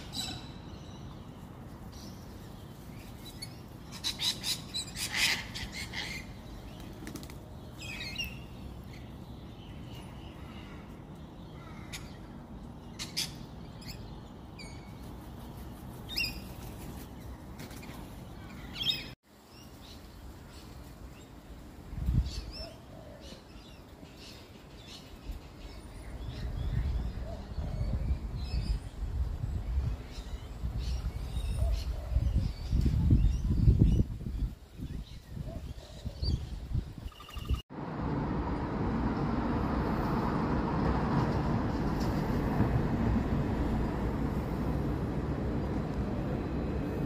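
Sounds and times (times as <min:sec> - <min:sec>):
birds chirping: 0:22.3 - 0:37.6.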